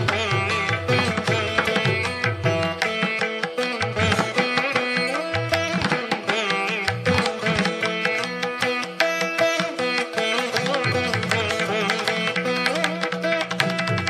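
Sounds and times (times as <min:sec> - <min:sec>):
hand drum rhythm: 0:00.0 - 0:14.0
plucked strings: 0:00.0 - 0:14.0.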